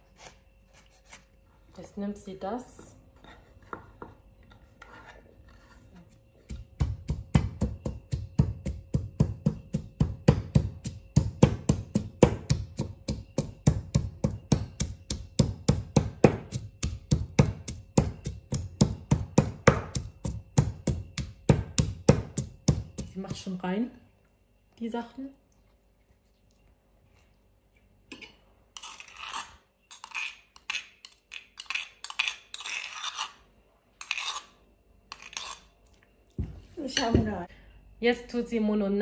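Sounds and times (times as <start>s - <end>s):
knife chopping on cutting board: 6.4s - 23.4s.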